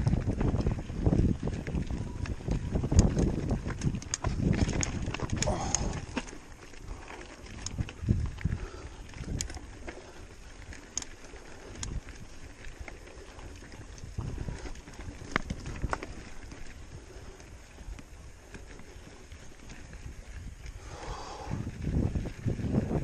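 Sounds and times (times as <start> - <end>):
clicks and knocks from stones: 0.0 - 16.8
bike tyres crunching over gravel: 0.0 - 23.0
wind rumble on microphone: 0.0 - 23.0.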